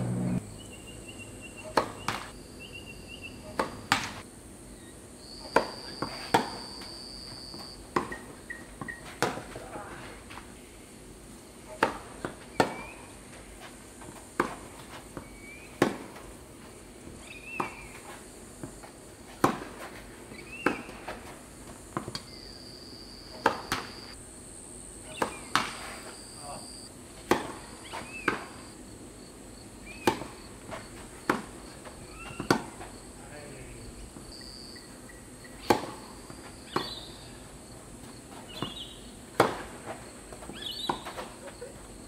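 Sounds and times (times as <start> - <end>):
high steady drone: 0.0 - 0.8
insects buzzing: 0.0 - 42.0
racquets striking tennis ball: 1.6 - 2.3, 3.5 - 4.2, 7.9 - 9.6, 14.4 - 16.3, 17.5 - 21.2, 23.3 - 24.1, 27.2 - 28.7, 29.9 - 33.0, 35.6 - 37.2, 38.3 - 41.4
tennis ball bouncing on court: 7.9 - 9.5, 14.4 - 16.2, 23.3 - 23.9, 27.2 - 28.6, 29.9 - 30.4, 31.2 - 32.9, 35.6 - 37.1, 38.5 - 41.3.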